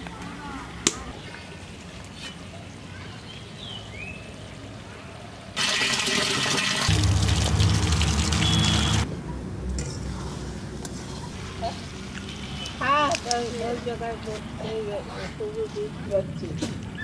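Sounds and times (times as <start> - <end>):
water pouring from a spout: 5.6 - 9.1.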